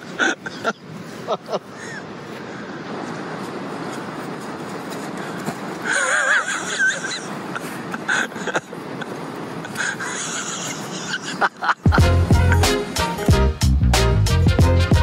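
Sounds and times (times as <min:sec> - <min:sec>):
outdoor rushing noise: 0:02.2 - 0:13.2
music with deep bass beat: 0:11.9 - 0:15.0.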